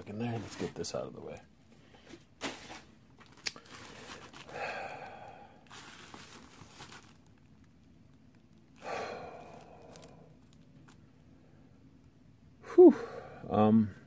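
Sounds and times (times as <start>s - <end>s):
plastic bag crinkling: 2.4s - 11.0s
person sighing: 4.4s - 5.6s, 8.8s - 10.3s, 12.6s - 13.5s.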